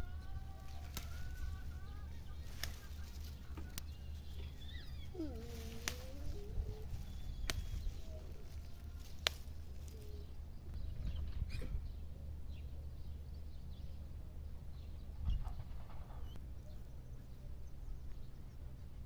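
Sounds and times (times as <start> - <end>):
faint bird chirps: 0.0 - 14.1
low steady rumble: 0.0 - 19.0.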